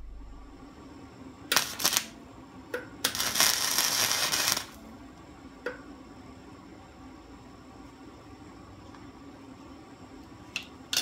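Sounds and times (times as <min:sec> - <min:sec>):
arc welding crackle: 0:01.5 - 0:02.2, 0:03.0 - 0:04.8.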